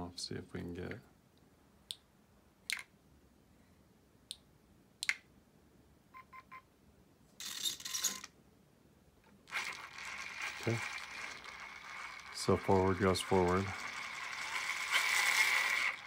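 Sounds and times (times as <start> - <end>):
switch clicks: 4.3 - 5.3
motor whir: 9.5 - 16.0.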